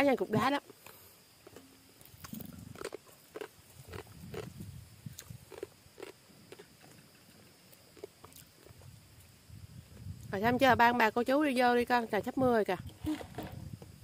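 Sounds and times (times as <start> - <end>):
soft chewing: 0.7 - 10.2.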